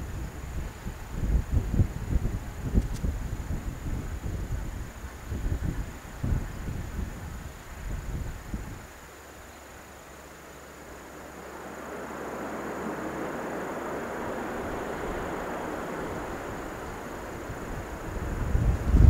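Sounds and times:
jet engine rushing noise: 10.8s - 19.0s.

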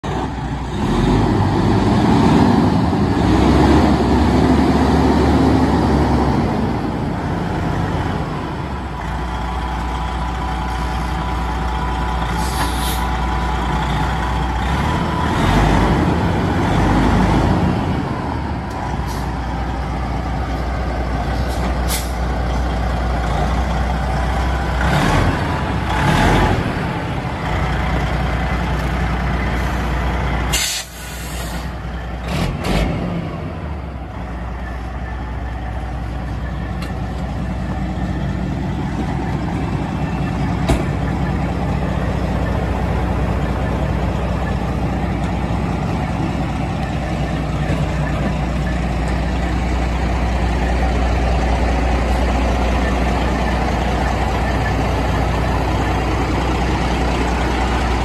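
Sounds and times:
diesel truck engine idling: 0.0s - 58.0s
sharp air hisses: 12.4s - 13.1s, 30.5s - 31.8s.

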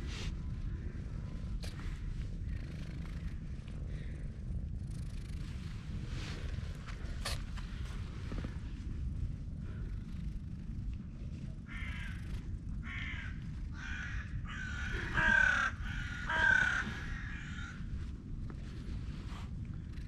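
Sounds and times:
cat purring: 0.0s - 20.0s
crows cawing: 11.7s - 12.2s, 12.8s - 17.8s.

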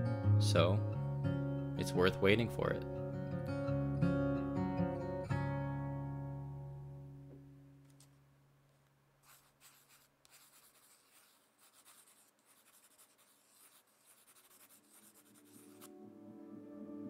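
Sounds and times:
soft ambient music: 0.0s - 7.6s, 14.5s - 17.0s
writing scratching on paper: 9.2s - 16.0s.

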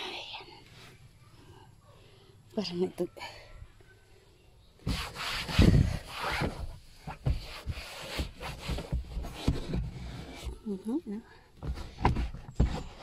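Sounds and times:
hand scrubbing on car: 4.8s - 10.4s.

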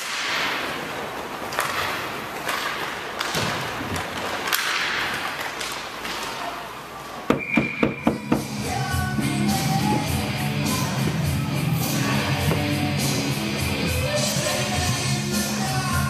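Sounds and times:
hockey stick clacks: 0.0s - 6.6s
skates rolling on rink floor: 0.0s - 16.0s
loud sharp knocks: 7.3s - 8.5s.

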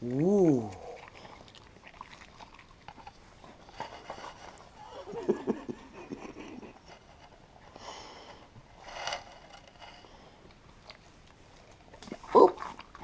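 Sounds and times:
dog chewing wetly: 0.5s - 4.8s, 10.3s - 13.0s.

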